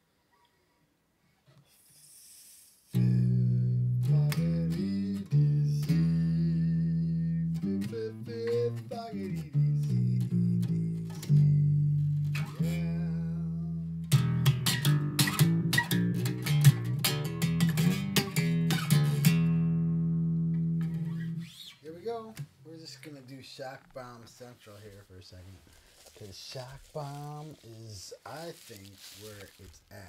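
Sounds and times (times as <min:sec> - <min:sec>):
guitar music: 0:02.9 - 0:22.5
steady bass line: 0:03.0 - 0:21.5.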